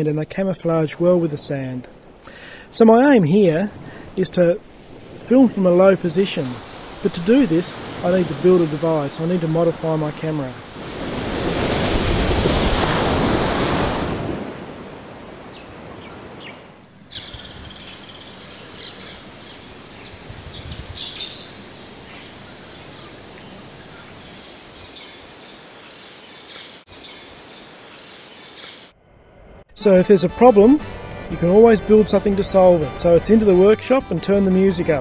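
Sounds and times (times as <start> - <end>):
surf washing over beach: 0.6 - 24.9
birds chirping and calling: 15.5 - 28.9.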